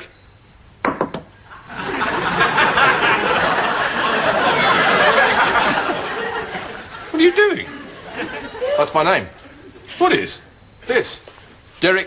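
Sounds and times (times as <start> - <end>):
audience laughter: 1.5 - 10.0.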